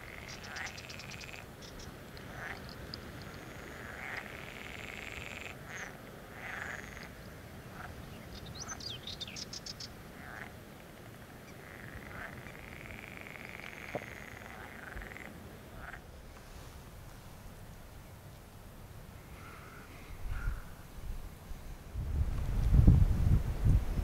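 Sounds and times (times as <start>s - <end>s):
frogs croaking and trilling: 0.0s - 16.2s, 19.1s - 20.9s
small bird twittering: 0.1s - 3.4s, 8.1s - 10.0s.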